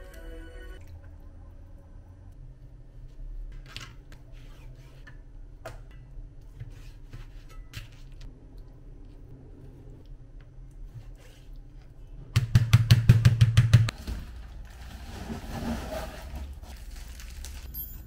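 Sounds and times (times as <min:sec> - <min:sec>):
low steady hum: 0:00.0 - 0:12.4.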